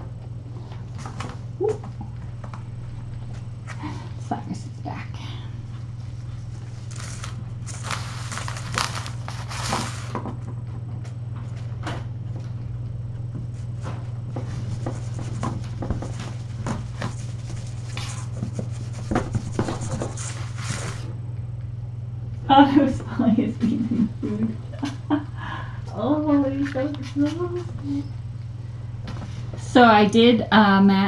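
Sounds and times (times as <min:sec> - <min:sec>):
steady low hum: 0:00.0 - 0:31.0
kittens scampering on a mat: 0:06.0 - 0:11.7, 0:13.4 - 0:21.1.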